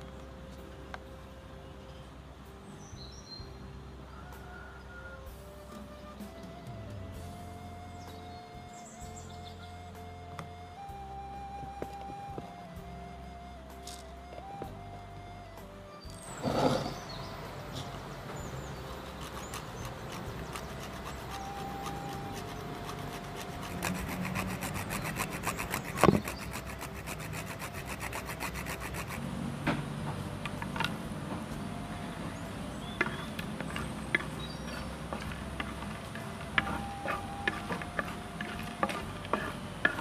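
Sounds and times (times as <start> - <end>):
spatula scraping spices in pan: 18.7 - 29.2, 32.9 - 40.0.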